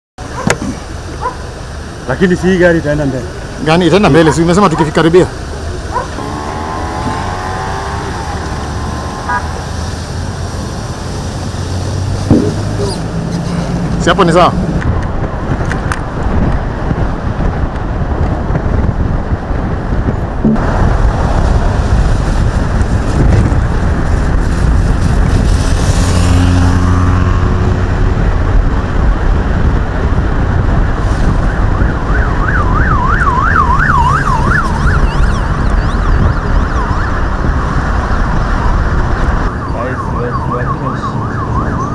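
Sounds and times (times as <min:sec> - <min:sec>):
vehicles driving past: 0:00.2 - 0:41.9
siren yelping: 0:06.0 - 0:09.7, 0:31.5 - 0:41.9.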